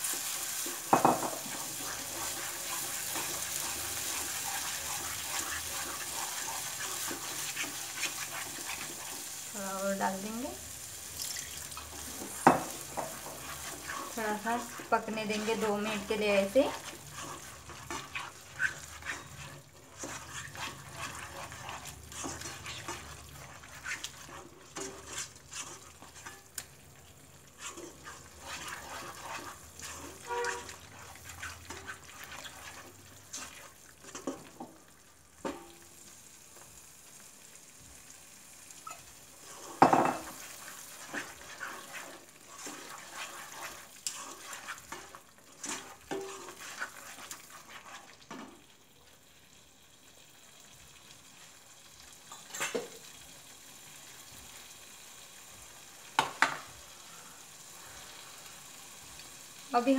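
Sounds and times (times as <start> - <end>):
spatula scraping a pan: 0.0 - 10.5, 11.6 - 26.5, 27.4 - 34.8, 38.8 - 48.6
soft sizzle of simmering paste: 0.0 - 59.9.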